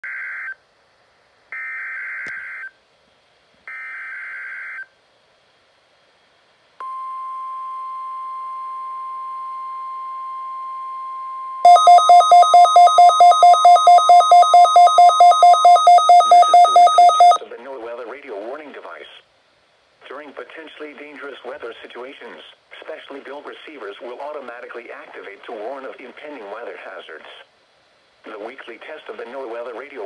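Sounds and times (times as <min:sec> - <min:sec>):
steady warning alarm tone: 0:06.8 - 0:17.4
rapid two-tone alarm beeping: 0:11.6 - 0:17.4
digital data bursts: 0:11.7 - 0:17.4.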